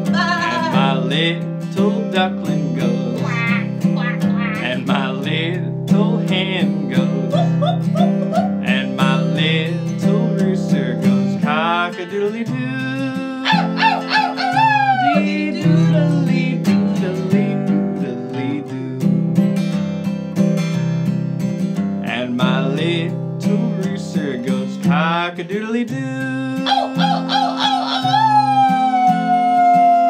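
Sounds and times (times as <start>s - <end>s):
acoustic guitar strumming: 0.0s - 30.0s
animal call sound effects: 3.2s - 4.8s, 13.4s - 15.4s, 26.6s - 30.0s.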